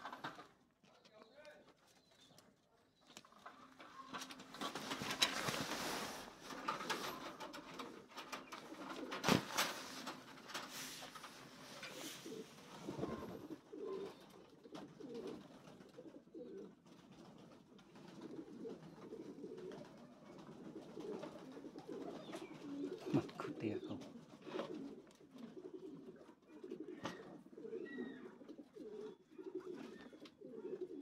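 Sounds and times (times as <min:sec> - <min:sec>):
soft low cooing calls: 0:05.0 - 0:16.8, 0:18.2 - 0:31.0.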